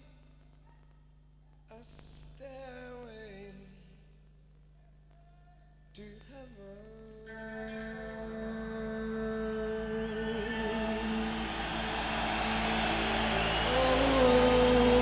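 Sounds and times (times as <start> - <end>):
man singing: 9.0 - 11.4, 13.6 - 15.0
sustained instrumental chord: 10.2 - 15.0.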